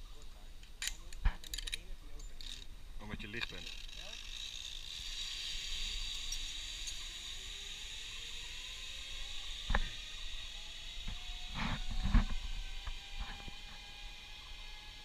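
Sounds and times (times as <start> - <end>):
zipline trolley hissing on cable: 3.6 - 15.0.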